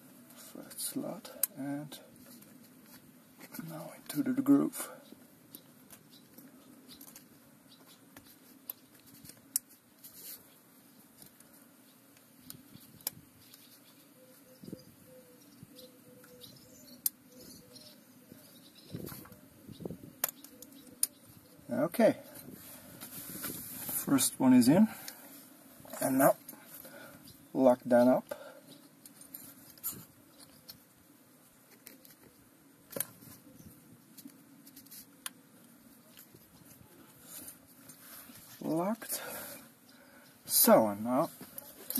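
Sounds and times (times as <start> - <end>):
small metallic clicks: 20.2 - 21.2.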